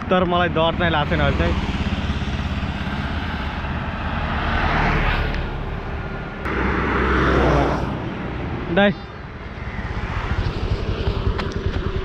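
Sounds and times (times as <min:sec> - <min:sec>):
low traffic rumble: 0:00.0 - 0:12.0
vehicles passing close by: 0:00.0 - 0:12.0.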